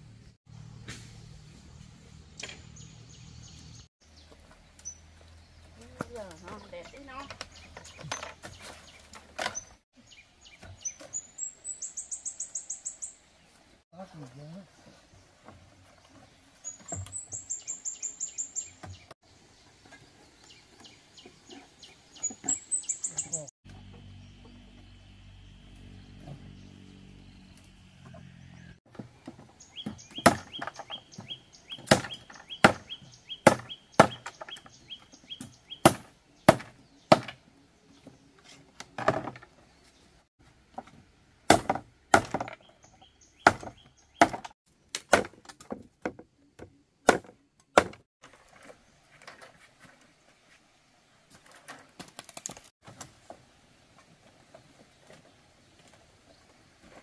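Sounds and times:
bamboo knocking and clacking: 0:06.0 - 0:09.7, 0:43.4 - 0:49.5.

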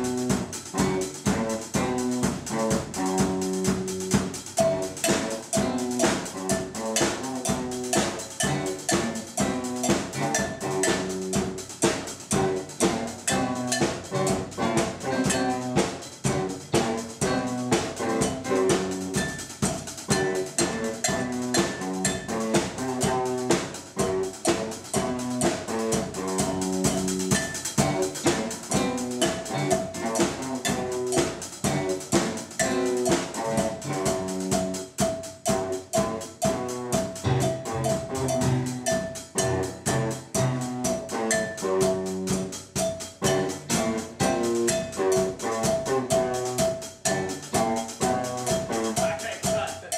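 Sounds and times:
rock band playing: 0:00.0 - 0:49.9
cowbell struck by stick: 0:04.6 - 0:14.3, 0:15.0 - 0:16.1, 0:16.8 - 0:23.3, 0:24.0 - 0:49.9.

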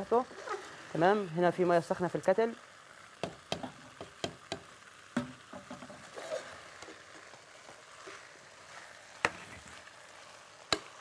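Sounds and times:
faint sizzle: 0:00.0 - 0:11.0
spoon knocking on pot: 0:03.2 - 0:06.0.

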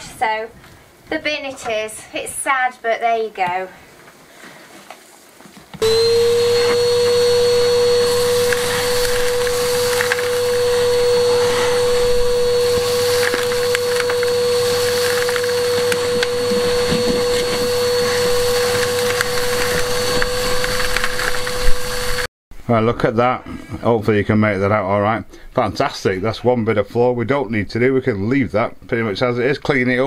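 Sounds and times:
debris rattling up a hose: 0:05.8 - 0:22.2
vacuum cleaner whining: 0:05.8 - 0:22.3.

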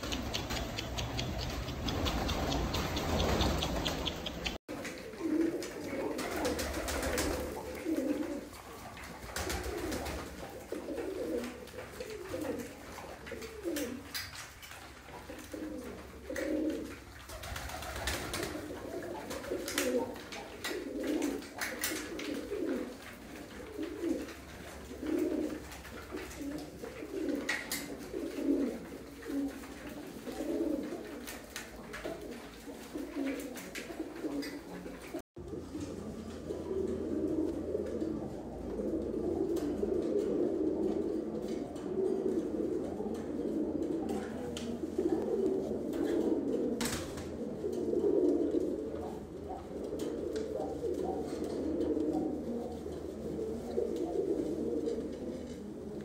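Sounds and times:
beaks pecking on concrete: 0:00.0 - 0:35.2
pigeons cooing: 0:00.0 - 0:56.0.

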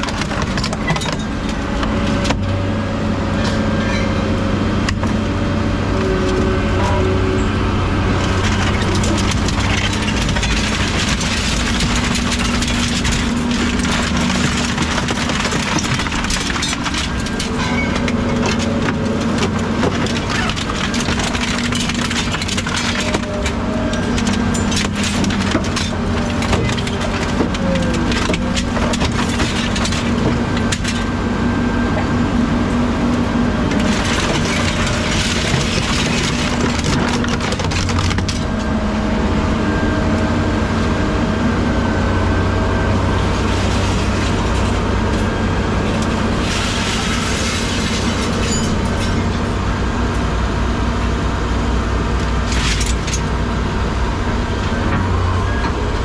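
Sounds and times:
machine engine running: 0:00.0 - 0:56.0
material crunching and cracking: 0:08.2 - 0:30.8.

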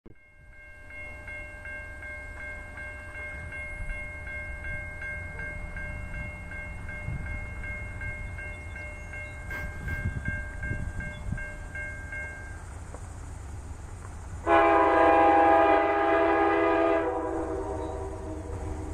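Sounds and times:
crossing bell ringing rapidly: 0:00.2 - 0:12.8.

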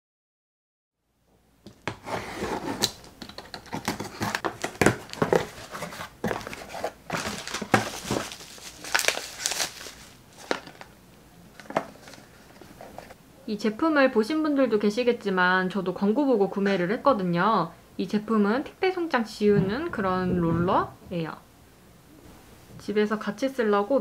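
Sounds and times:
cardboard and plastic crinkling: 0:01.9 - 0:10.9, 0:11.5 - 0:13.2
tape tearing: 0:03.6 - 0:10.9.

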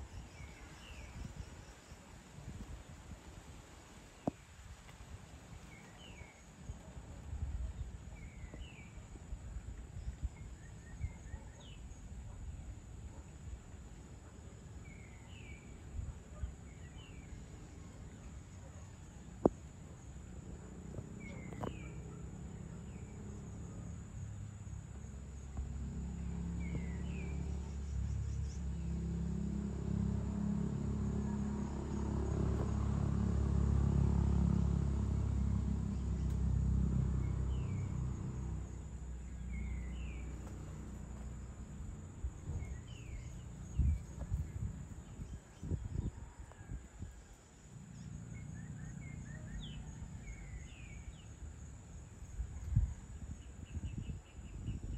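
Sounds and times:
distant engine rumble passing: 0:19.7 - 0:54.9
bird chirps: 0:47.9 - 0:51.3.

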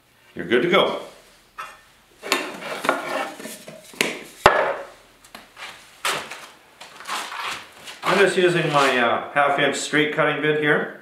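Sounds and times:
tools knocking and scraping on bench: 0:01.6 - 0:04.9.

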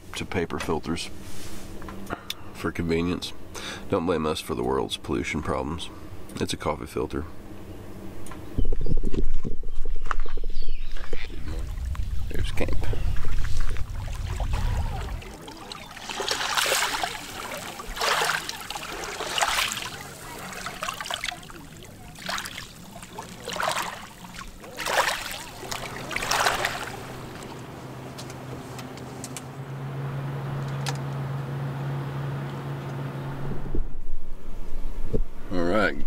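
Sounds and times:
boat motor drone: 0:01.0 - 0:09.6, 0:10.5 - 0:34.0
waves washing onto pebbles: 0:13.3 - 0:27.6.

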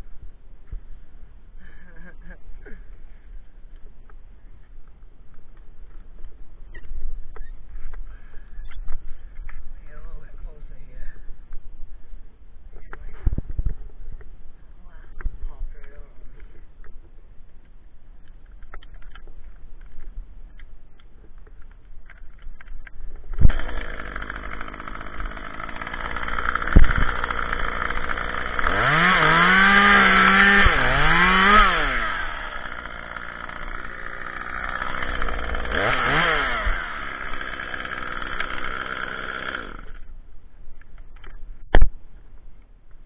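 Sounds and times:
chainsaw running and revving: 0:23.4 - 0:40.0.

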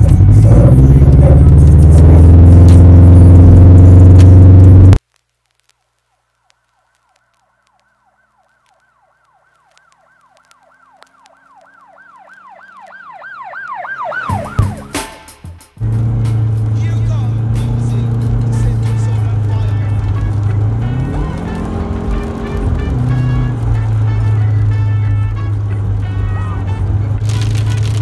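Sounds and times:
siren yelping: 0:07.0 - 0:15.0
loud music: 0:14.2 - 0:27.5.

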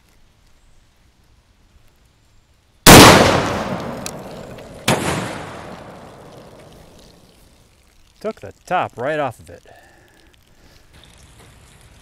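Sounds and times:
shotgun blast: 0:02.9 - 0:06.7
sharp crack: 0:02.9 - 0:08.3.

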